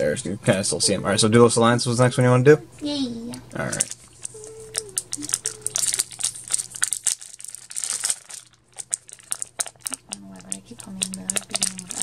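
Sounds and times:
foil wrapper crinkling and tearing: 3.7s - 12.0s.

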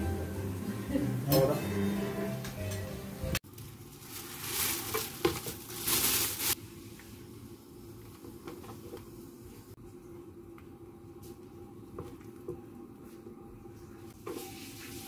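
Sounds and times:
rustling on plastic cutting board: 3.5s - 6.6s.

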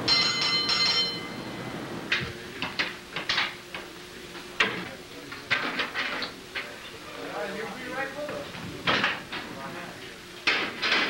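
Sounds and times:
signal bell ringing: 0.0s - 1.8s.

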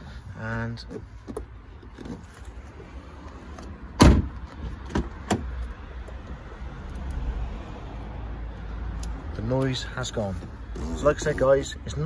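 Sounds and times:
car door shutting thud: 4.0s - 5.4s.

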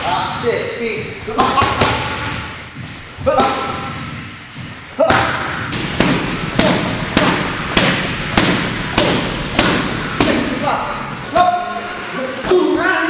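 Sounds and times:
boxing gloves smacking mitts: 5.1s - 10.5s.

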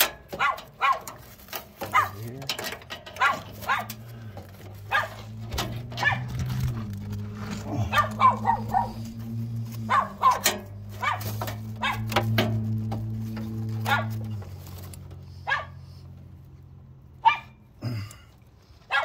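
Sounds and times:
dog barking: 0.3s - 1.1s, 1.9s - 2.2s, 3.2s - 4.0s, 4.8s - 6.4s, 7.8s - 9.1s, 9.8s - 12.2s, 13.8s - 14.2s, 15.4s - 16.0s, 17.2s - 17.6s.

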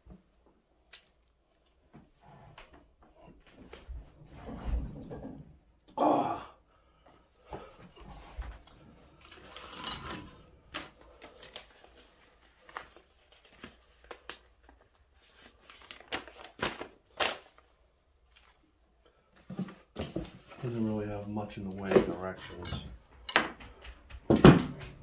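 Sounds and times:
paper packing rustling: 8.2s - 18.6s, 19.4s - 22.6s.

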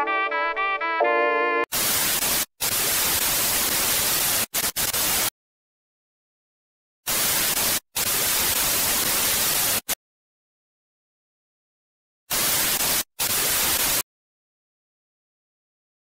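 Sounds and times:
tv static hiss bursts: 1.7s - 5.3s, 7.1s - 10.0s, 12.3s - 14.0s.

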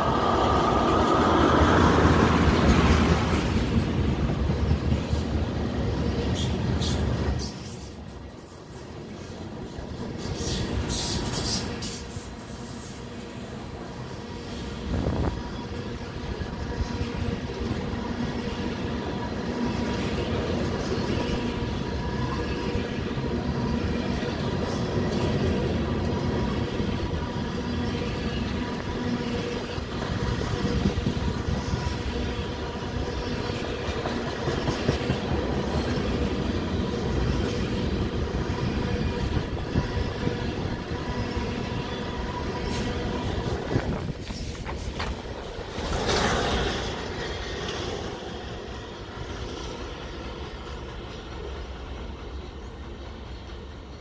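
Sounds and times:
freight train rolling past: 0.0s - 54.0s
wheels clicking over rail joints: 43.4s - 48.5s.

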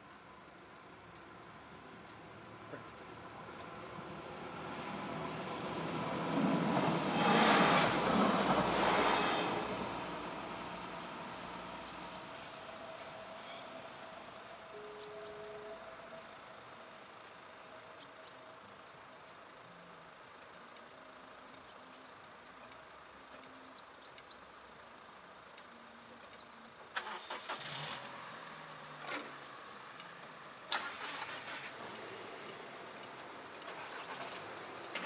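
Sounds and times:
car engines starting: 2.1s - 17.6s, 26.9s - 35.0s.

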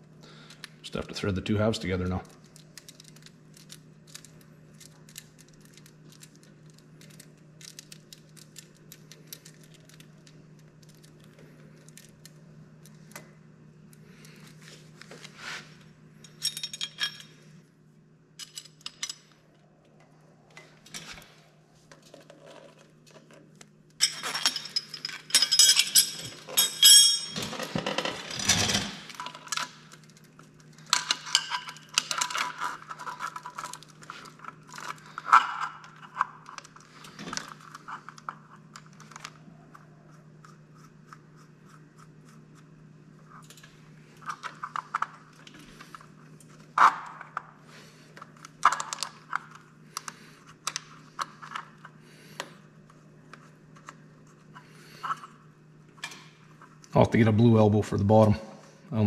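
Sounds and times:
low steady hum: 0.0s - 59.0s
wrench clinking and scraping on metal: 16.2s - 17.4s, 24.0s - 29.6s, 30.9s - 33.7s.

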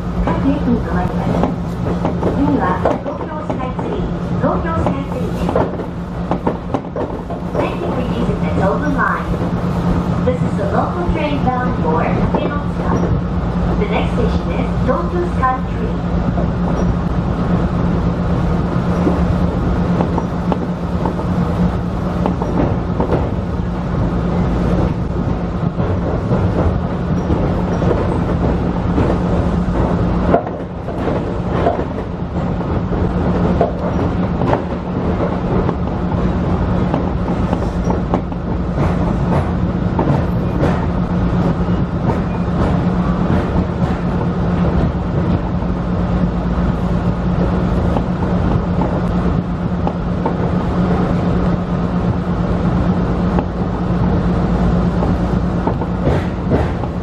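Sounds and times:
electric train running hum: 0.0s - 57.0s
wheel clicks over rail joints: 18.8s - 52.1s, 52.7s - 57.0s.

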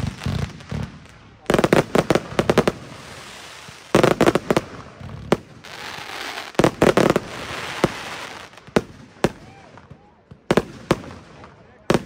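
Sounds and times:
crackling hiss of firework stars: 0.0s - 12.0s
firework bangs: 0.0s - 12.0s.

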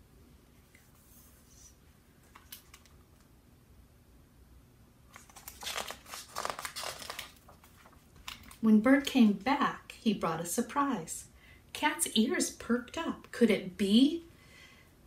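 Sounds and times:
book pages crinkling and rustling: 5.1s - 8.6s.

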